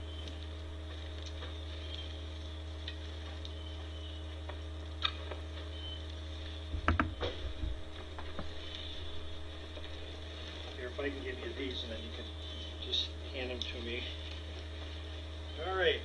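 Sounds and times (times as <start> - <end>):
low electrical hum: 0.0 - 16.0
knocks and rustling: 6.7 - 8.6.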